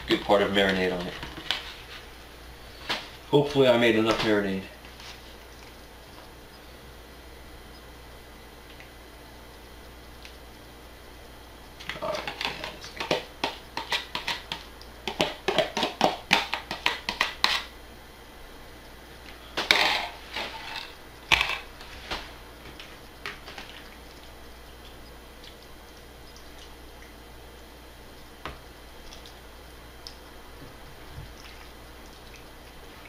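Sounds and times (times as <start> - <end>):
fork scraping plastic container: 19.7 - 21.7.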